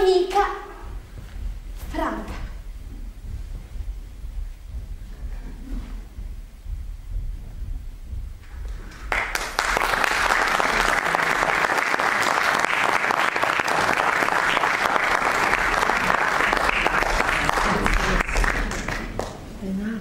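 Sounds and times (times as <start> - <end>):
audience applauding: 8.9 - 19.4.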